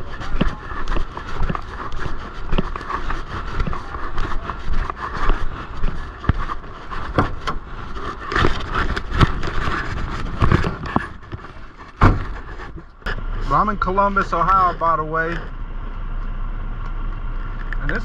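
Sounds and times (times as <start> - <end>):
knocks and rattles: 0.0 - 13.0
truck engine and road rumble: 0.0 - 18.0.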